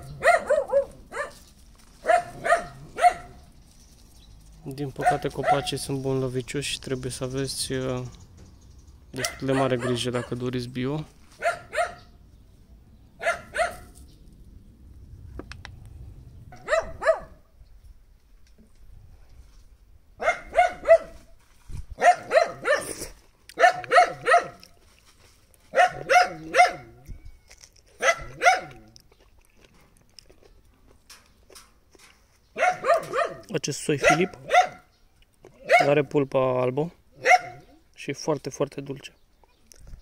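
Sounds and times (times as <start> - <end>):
dog barking: 0.0 - 1.4, 2.0 - 3.4, 5.0 - 5.8, 9.2 - 10.4, 11.4 - 12.2, 13.2 - 14.0, 16.5 - 17.4, 20.2 - 21.3, 22.0 - 24.7, 25.7 - 27.0, 28.0 - 28.9, 32.6 - 34.9, 35.6 - 36.1, 37.2 - 37.7.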